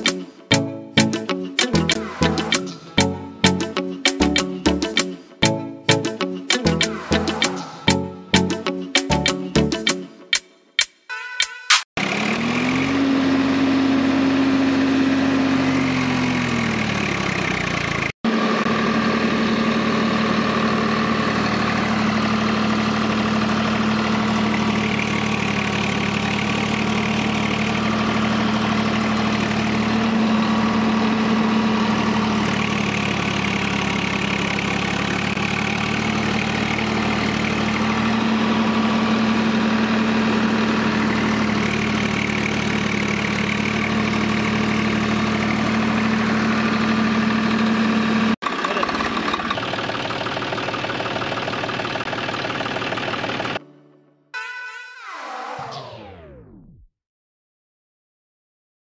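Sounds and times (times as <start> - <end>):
engine-like drone: 12.0 - 53.6, 55.0 - 56.8.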